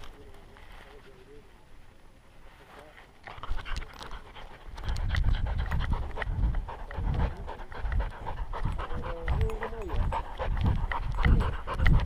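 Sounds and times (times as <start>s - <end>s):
puppy panting: 3.3s - 12.0s.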